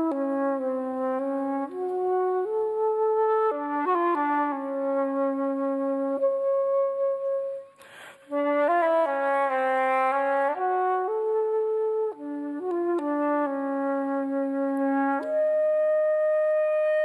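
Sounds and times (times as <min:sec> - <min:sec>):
flute playing slow melody: 0:00.0 - 0:17.0
breath between phrases: 0:07.8 - 0:08.3.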